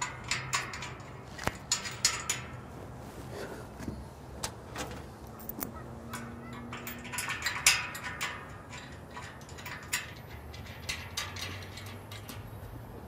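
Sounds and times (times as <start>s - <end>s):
metallic clicks of bolts: 0.0s - 2.6s, 5.2s - 12.8s.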